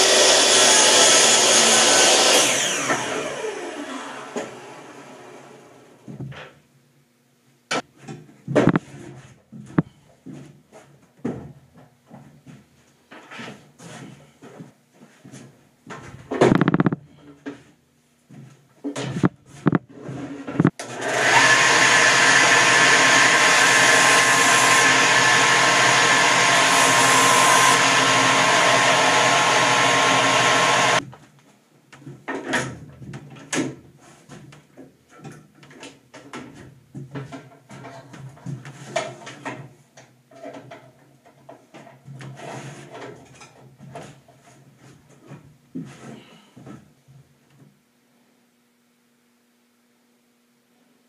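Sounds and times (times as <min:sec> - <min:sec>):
belt sander running: 0:00.0 - 0:05.0, 0:20.8 - 0:31.0.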